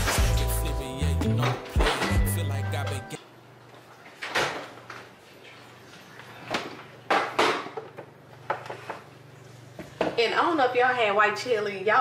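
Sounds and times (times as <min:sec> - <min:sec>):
kitchen knocks and clunks: 0:04.2 - 0:05.0, 0:06.5 - 0:09.0, 0:09.8 - 0:10.2.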